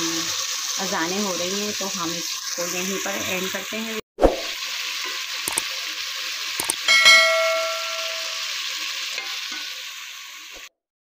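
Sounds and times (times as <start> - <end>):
food sizzling in hot oil: 0.0 - 10.7
faint clicks: 6.6 - 6.8
metallic ding: 6.8 - 8.5.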